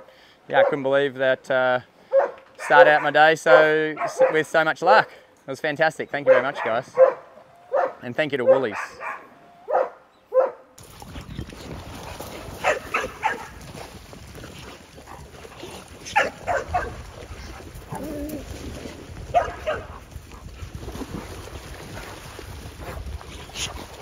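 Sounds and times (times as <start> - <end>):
dogs barking: 0.6 - 0.8, 2.1 - 4.5, 6.2 - 10.7, 12.6 - 13.6, 16.0 - 17.0, 19.3 - 20.0
water splashing: 10.8 - 24.0
wind on microphone: 10.8 - 24.0.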